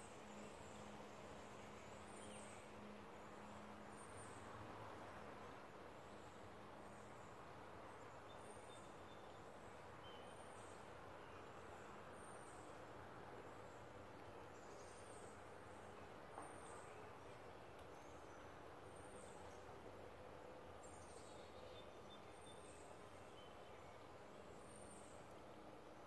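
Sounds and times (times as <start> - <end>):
faint garden ambience: 0.0 - 26.0
songbird chirping: 8.0 - 12.7, 13.6 - 25.7.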